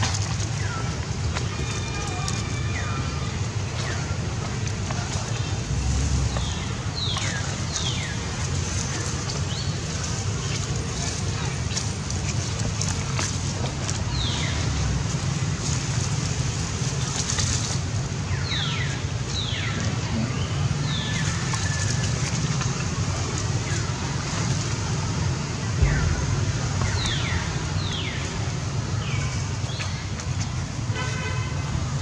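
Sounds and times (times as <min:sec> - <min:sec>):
steady low rumble: 0:22.2 - 0:30.8.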